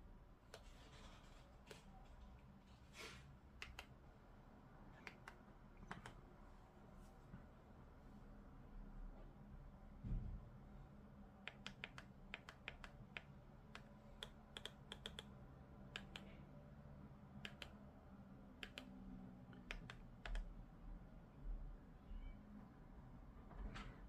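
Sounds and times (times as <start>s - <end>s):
remote control button clicks: 3.6s - 3.9s, 5.0s - 6.2s.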